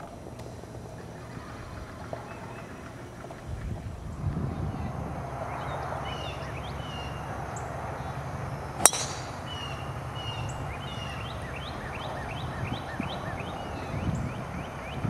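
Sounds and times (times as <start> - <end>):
birds chirping: 0.0 - 15.0
golf club striking ball: 8.8 - 9.8.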